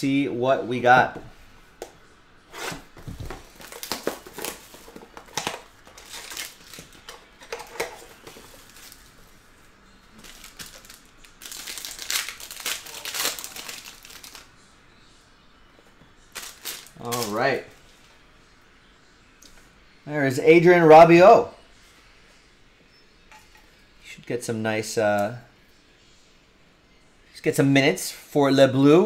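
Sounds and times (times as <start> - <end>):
plastic and foil wrapper crinkling: 3.2 - 9.2, 10.1 - 14.5, 16.3 - 17.4.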